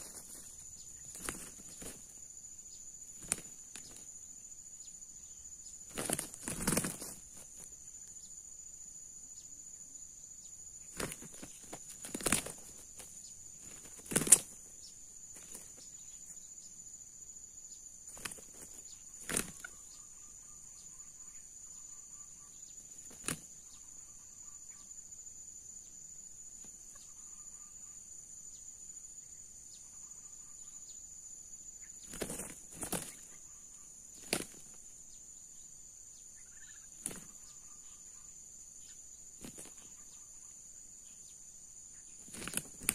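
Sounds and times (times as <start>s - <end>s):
roosters wing flapping: 0.0s - 2.2s, 3.1s - 4.1s, 5.8s - 7.7s, 10.9s - 15.9s, 18.1s - 19.8s, 22.9s - 23.6s, 32.0s - 33.4s, 34.1s - 34.9s, 36.8s - 37.5s, 39.4s - 40.0s, 42.2s - 42.9s
high insect drone: 0.0s - 42.9s.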